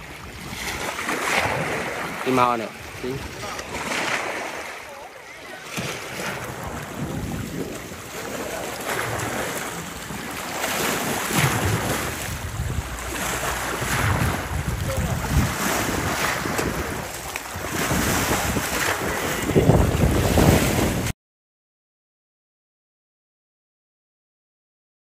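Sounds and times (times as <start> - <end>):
rushing water and waves: 0.0 - 21.2
wind buffeting microphone: 6.2 - 21.1.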